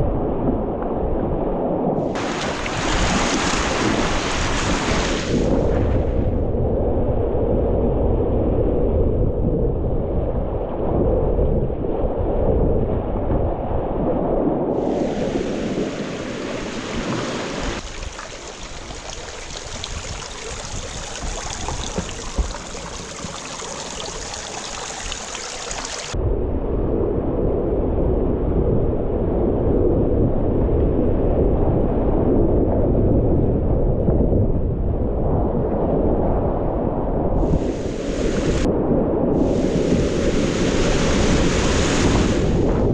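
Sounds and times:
wind buffeting microphone: 0:00.0 - 0:42.9
rushing whitewater: 0:02.2 - 0:05.3, 0:14.8 - 0:26.2.

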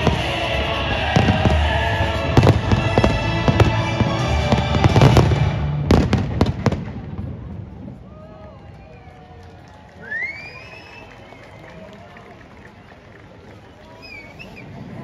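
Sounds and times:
music playing: 0:00.0 - 0:06.2.

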